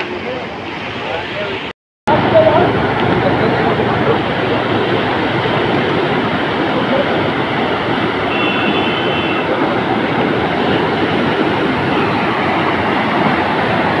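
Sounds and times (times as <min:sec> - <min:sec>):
floodwater rushing: 0:00.0 - 0:14.0.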